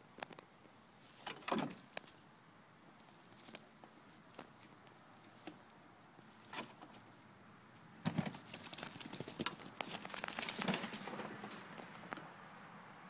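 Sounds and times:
dog paws scrabbling through straw: 8.4s - 11.9s.

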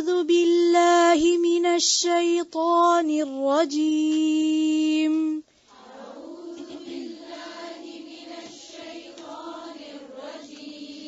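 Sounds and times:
choir-like humming: 5.7s - 11.0s.

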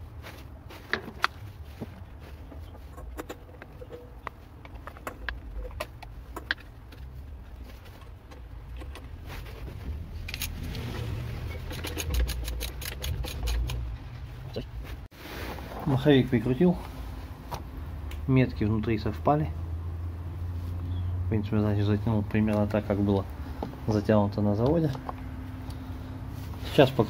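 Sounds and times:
small metal clicks and knocks: 2.8s - 7.1s, 11.6s - 14.0s.

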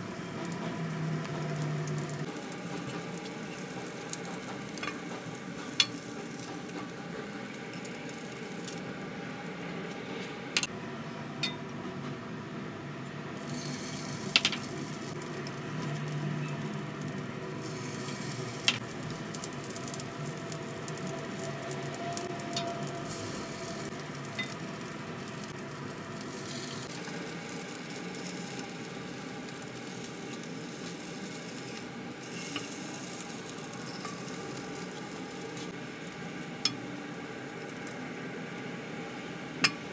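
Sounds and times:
oil sizzling in a wok: 0.0s - 10.7s, 13.4s - 39.9s.

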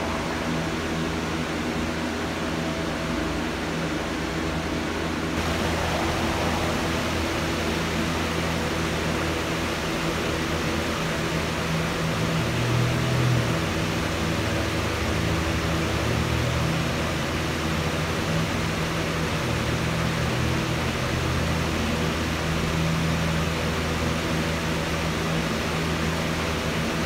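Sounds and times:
low hum: 0.0s - 3.1s, 5.4s - 11.5s
steady hiss: 5.4s - 10.0s.

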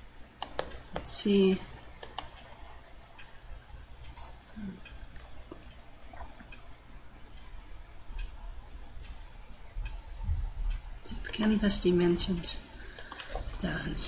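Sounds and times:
faint low hum: 0.0s - 14.0s
computer mouse clicking: 0.4s - 1.2s, 2.0s - 3.3s.

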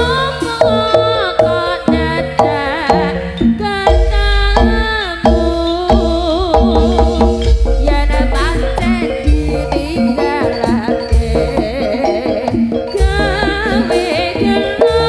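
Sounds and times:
hand drum strokes: 0.0s - 15.0s
wavering melody line: 0.0s - 15.0s
deep bass: 1.9s - 11.9s, 12.9s - 13.9s.

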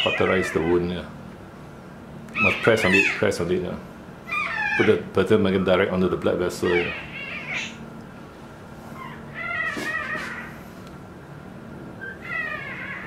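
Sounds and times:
puppy crying in high squeals: 0.0s - 1.0s, 2.3s - 3.4s, 4.2s - 5.1s, 6.6s - 7.8s, 9.0s - 10.6s, 12.0s - 13.0s.

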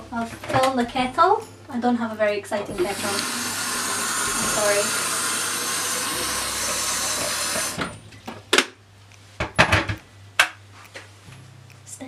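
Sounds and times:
tap running into kettle: 2.7s - 8.0s.

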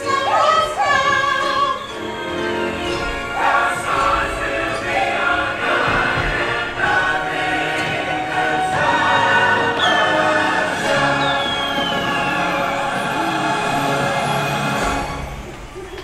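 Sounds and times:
soundtrack music with choir: 0.0s - 16.0s
falling whistle-like glides: 7.8s - 13.6s.

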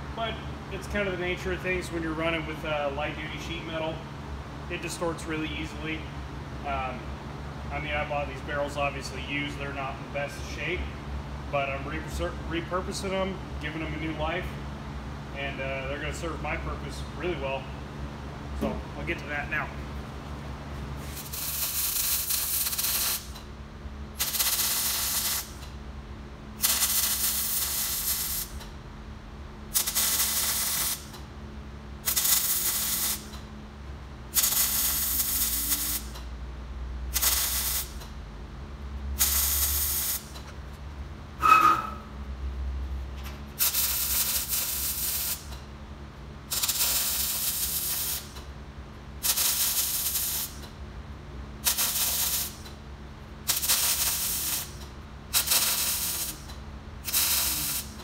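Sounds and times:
welder arc crackling: 21.1s - 23.4s, 24.2s - 25.7s, 26.6s - 28.6s, 29.8s - 31.2s, 32.1s - 33.4s, 34.4s - 36.1s, 53.5s - 54.8s, 55.4s - 56.5s, 57.1s - 58.0s.

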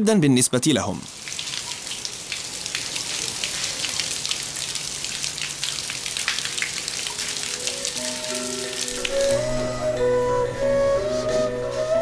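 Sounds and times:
rain on a hard surface: 1.0s - 9.9s.

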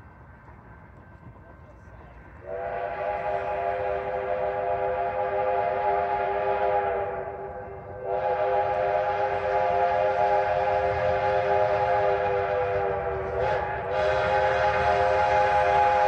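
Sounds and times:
steam locomotive whistle: 2.4s - 16.0s.

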